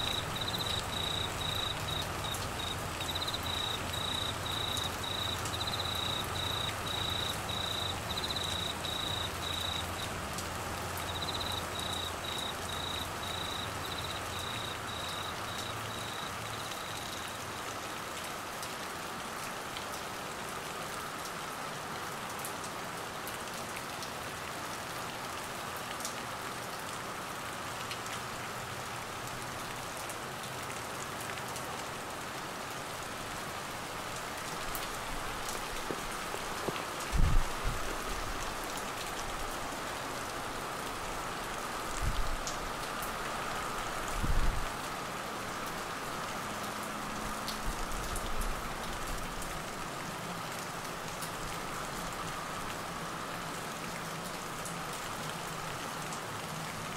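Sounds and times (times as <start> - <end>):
cricket chirping: 0.0 - 10.1, 11.0 - 17.4
heavy rain on vegetation: 0.0 - 56.9.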